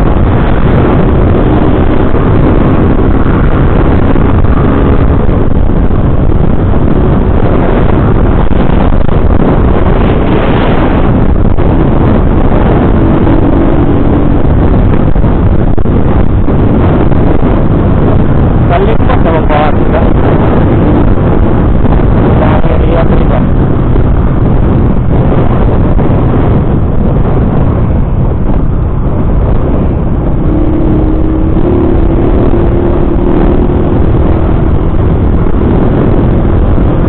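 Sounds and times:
motorcycle engine running: 0.0s - 37.0s
wind noise on microphone: 0.0s - 37.0s.

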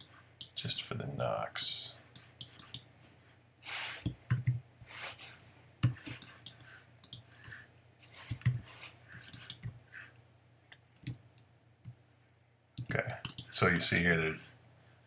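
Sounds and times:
keyboard and mouse clicks: 2.1s - 2.9s, 4.0s - 4.6s, 5.3s - 9.8s, 10.7s - 12.0s, 12.8s - 14.2s.

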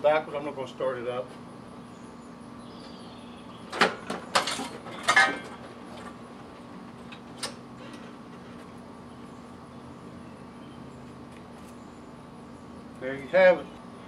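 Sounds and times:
metal clunks and rattles: 3.7s - 7.6s.

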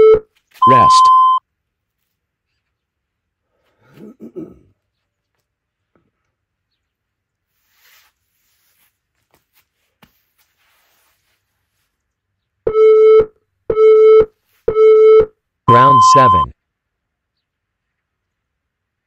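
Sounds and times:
short electronic beeps: 0.0s - 1.4s, 12.7s - 16.5s
faint rustle: 7.4s - 12.5s.

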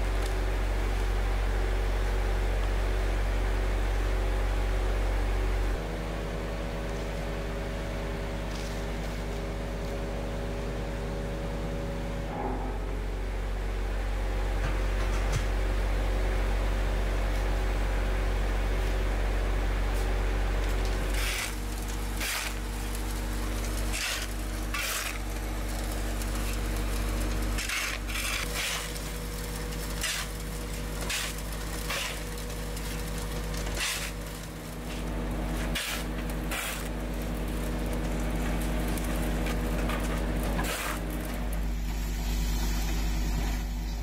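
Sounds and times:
shovels scraping asphalt: 21.1s - 22.6s, 23.9s - 25.2s, 27.6s - 29.0s, 33.7s - 34.2s, 34.9s - 37.0s, 40.6s - 41.1s.

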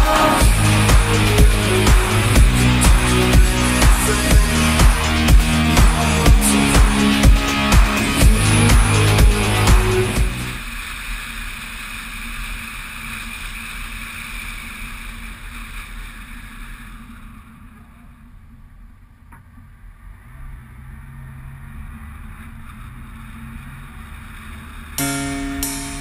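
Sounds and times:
car road and wind noise: 8.0s - 25.0s.

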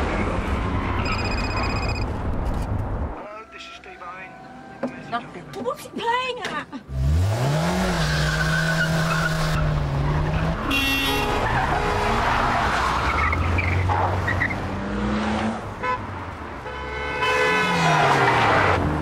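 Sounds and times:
tyres squealing: 0.7s - 2.1s
car engines revving: 6.8s - 16.6s, 17.5s - 19.0s.

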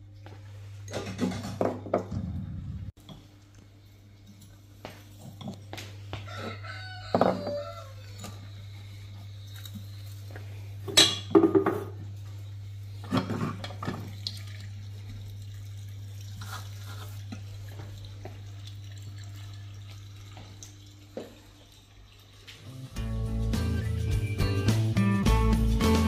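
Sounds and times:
dishes and pots clattering: 0.9s - 2.1s, 7.1s - 8.6s, 10.9s - 12.0s, 13.0s - 14.1s.

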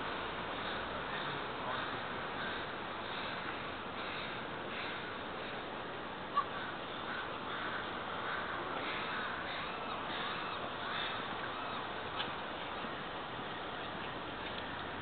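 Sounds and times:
steady background hiss: 0.0s - 15.0s
crows cawing: 0.6s - 5.7s, 6.4s - 11.9s.

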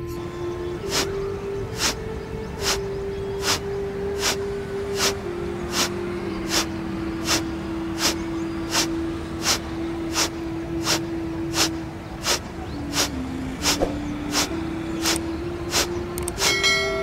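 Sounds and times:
held music tone: 0.0s - 17.0s
forceful nasal exhalations: 1.8s - 2.0s, 3.4s - 3.6s, 4.2s - 4.4s, 5.0s - 5.9s, 6.5s - 7.4s, 8.0s - 15.9s.

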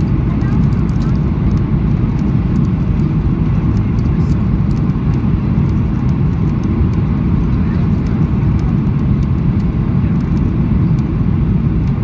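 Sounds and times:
jet engines roaring in cabin: 0.0s - 12.0s.

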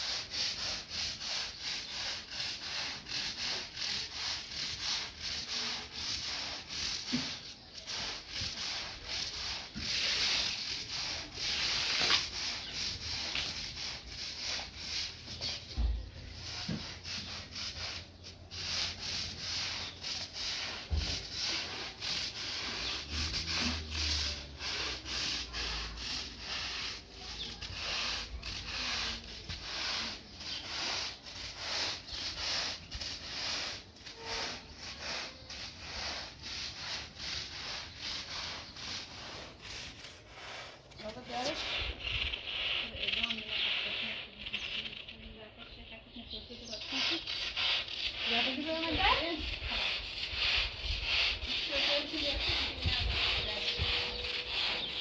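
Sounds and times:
rubbing strokes: 0.0s - 55.0s.

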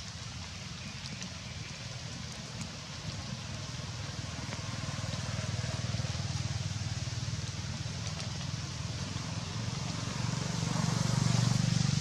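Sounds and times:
vehicle engine humming: 3.4s - 12.0s.

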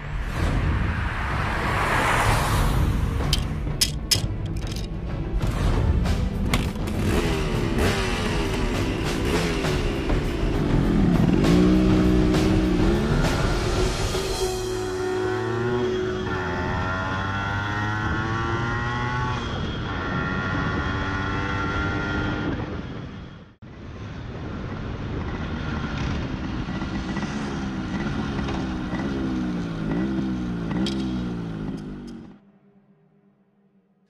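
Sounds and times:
motorcycle engine accelerating: 6.5s - 14.2s, 15.2s - 23.3s, 25.0s - 32.5s.

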